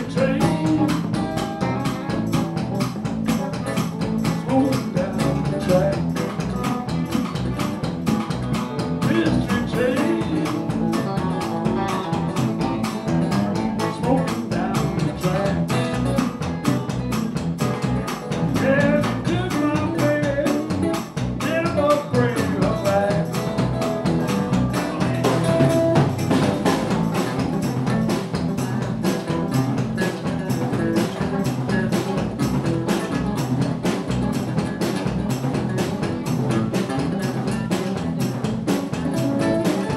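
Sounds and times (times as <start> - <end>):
man singing: 0.0 - 1.4, 4.2 - 6.3, 9.0 - 12.4, 13.6 - 16.3, 18.4 - 26.0, 29.9 - 32.2
blues band playing: 0.0 - 39.9.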